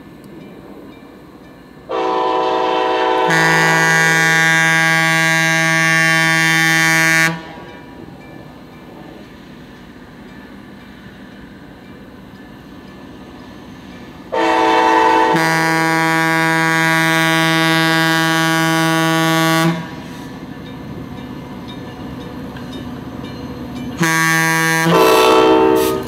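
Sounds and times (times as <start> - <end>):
trains rumbling: 0.0 - 26.0
locomotive air horns: 1.9 - 7.5, 14.3 - 20.4, 24.0 - 26.0.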